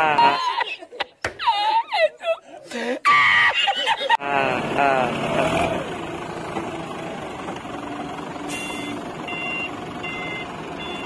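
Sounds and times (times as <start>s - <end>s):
forklift engine running: 4.5s - 11.0s
reversing alarm beeping: 8.6s - 11.0s.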